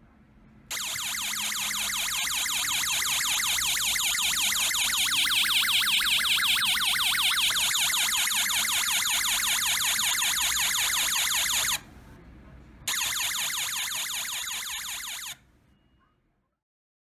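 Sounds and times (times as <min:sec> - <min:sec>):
electronic police siren yelp: 0:00.7 - 0:11.8, 0:12.9 - 0:15.4.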